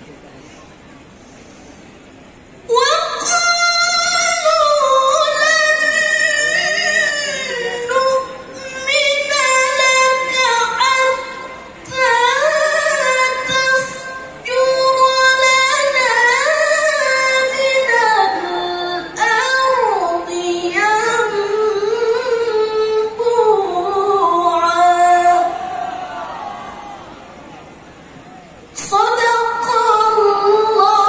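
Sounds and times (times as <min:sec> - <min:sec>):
woman chanting melodically: 0:02.7 - 0:26.0, 0:28.8 - 0:31.0.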